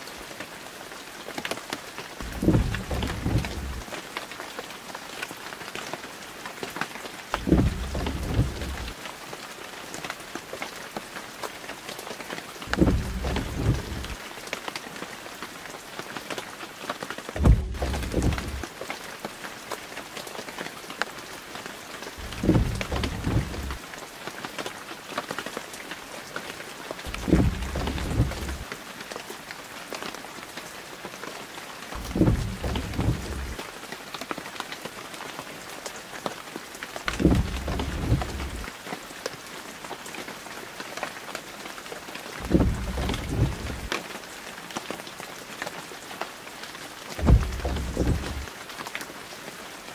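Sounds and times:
rain falling: 0:00.0 - 0:49.9
short low rumble: 0:02.2 - 0:03.8, 0:07.4 - 0:08.9, 0:12.7 - 0:14.2, 0:17.4 - 0:18.6, 0:22.2 - 0:23.8, 0:27.1 - 0:28.6, 0:32.0 - 0:33.6, 0:37.1 - 0:38.7, 0:42.4 - 0:43.9, 0:47.2 - 0:48.5.

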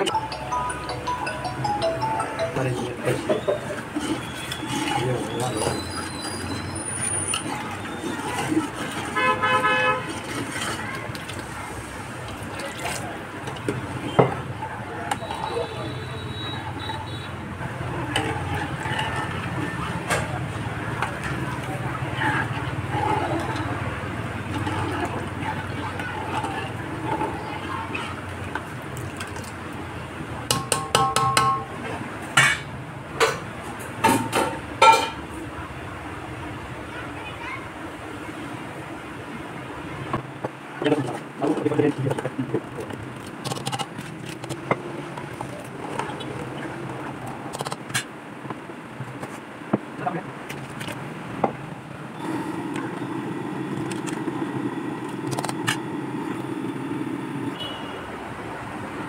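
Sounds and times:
liquid boiling in a pot: 0:03.8 - 0:31.7, 0:51.2 - 0:59.0
metal spoon clanking on pot: 0:30.5 - 0:31.7
stove burner flame: 0:52.2 - 0:57.6.

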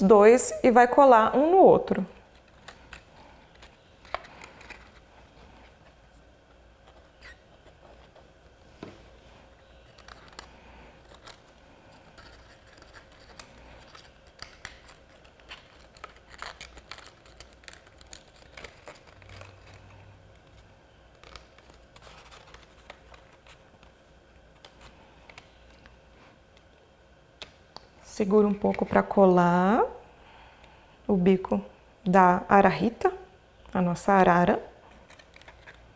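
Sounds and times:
faint steady hum: 0:00.0 - 0:35.9
paper rustling and crinkling: 0:02.3 - 0:24.0.

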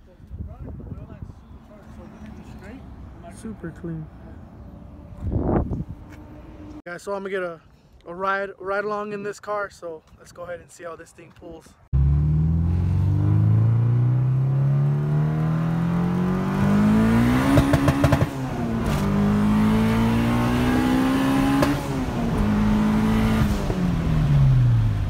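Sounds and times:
car engine accelerating: 0:11.9 - 0:25.0.

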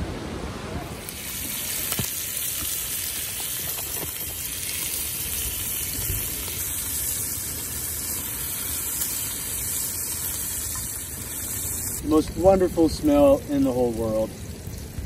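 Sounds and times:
camp stove low rumble: 0:00.1 - 0:15.0
bacon sizzling in skillet: 0:00.9 - 0:15.0.

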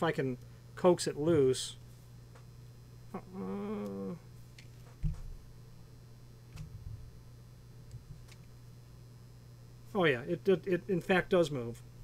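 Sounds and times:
mains hum: 0:00.0 - 0:12.0
man humming with effort: 0:03.1 - 0:04.3.

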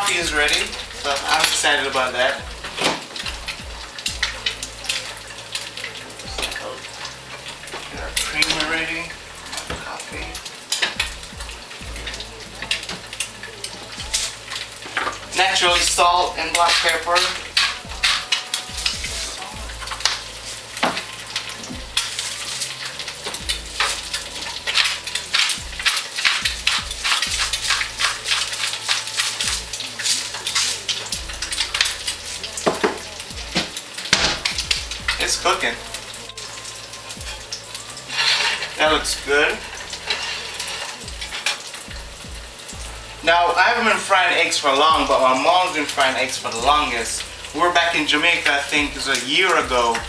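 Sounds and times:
egg sizzling in a pan: 0:00.0 - 0:50.0
pepper mill grinding: 0:12.7 - 0:38.9.

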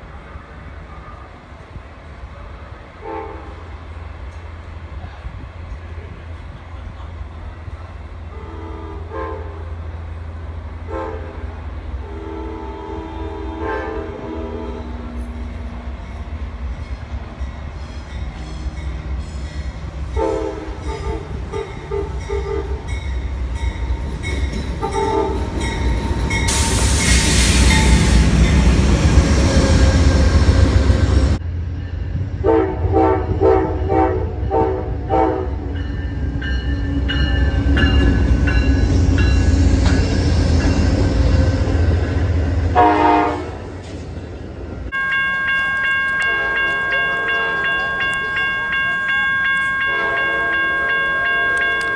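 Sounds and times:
train rumble: 0:00.0 - 0:51.9
train horn blasts: 0:03.0 - 0:03.7, 0:08.3 - 0:09.8, 0:10.8 - 0:15.3, 0:20.1 - 0:23.0, 0:24.8 - 0:25.8, 0:32.4 - 0:35.8, 0:42.7 - 0:43.7, 0:46.2 - 0:48.1, 0:49.8 - 0:51.9.

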